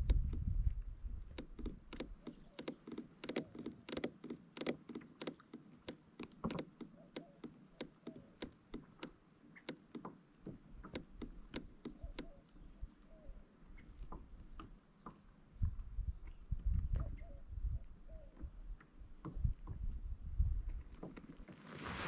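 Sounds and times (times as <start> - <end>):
kayak pedal drive squeaking clicking: 1.3 - 10.2, 10.8 - 12.5.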